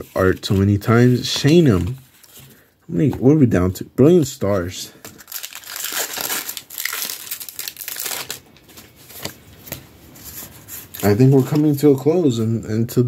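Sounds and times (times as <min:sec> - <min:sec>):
foil wrapper crinkling: 0:05.0 - 0:09.4
wrapper tearing: 0:05.1 - 0:09.2.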